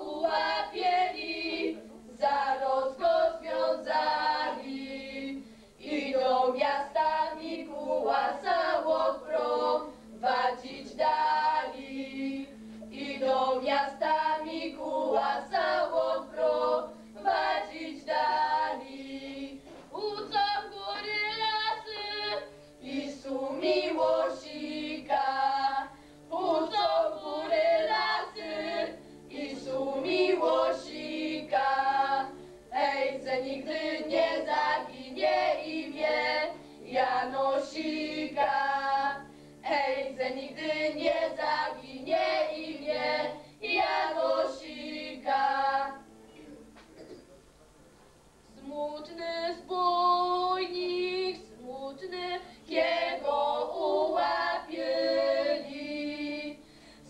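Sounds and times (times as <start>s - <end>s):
girls singing unaccompanied: 0.0s - 46.1s, 48.5s - 56.6s.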